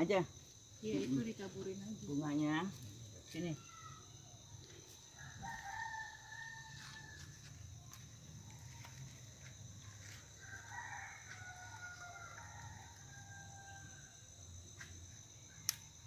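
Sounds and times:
insects droning: 0.0s - 16.0s
rooster crowing: 5.1s - 7.5s, 10.3s - 14.4s.

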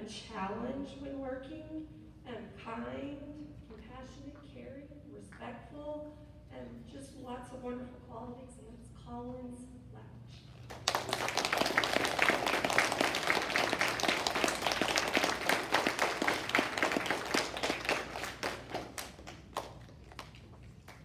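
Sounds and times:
children clapping: 10.7s - 21.0s.

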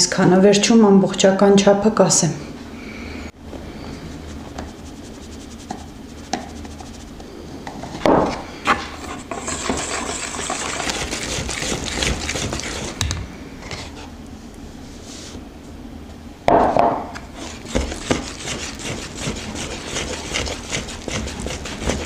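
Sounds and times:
wire whisk beating batter: 4.3s - 7.2s, 9.3s - 13.0s, 17.4s - 22.0s.

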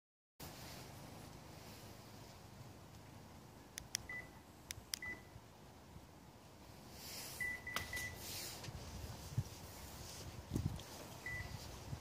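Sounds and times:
remote button clicks: 3.8s - 5.2s
short high beep: 7.4s - 8.2s, 11.2s - 11.6s.

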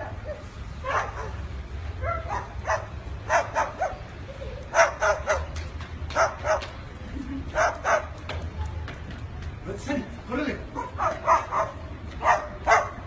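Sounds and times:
cockatoo barking calls: 2.0s - 6.7s, 10.7s - 13.0s.

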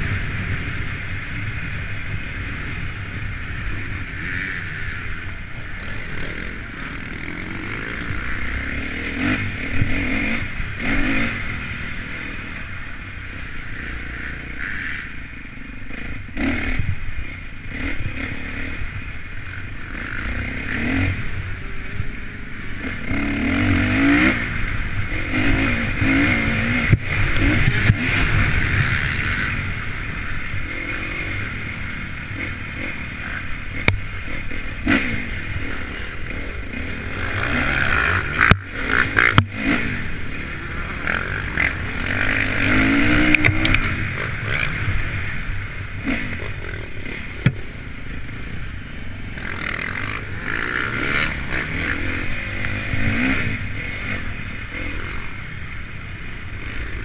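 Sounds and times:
motorbike engine revving: 0.0s - 57.0s
wind rush on microphone: 23.9s - 32.5s.

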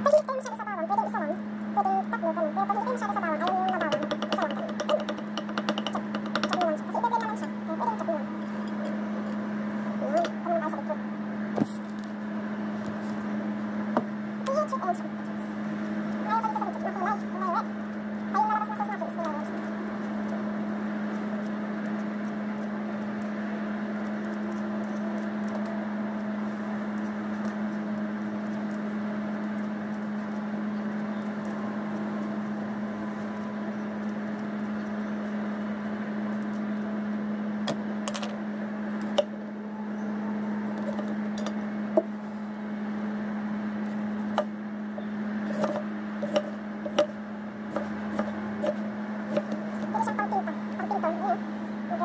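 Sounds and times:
low hum: 0.0s - 52.0s
knife knocking on chopping block: 3.7s - 6.6s.

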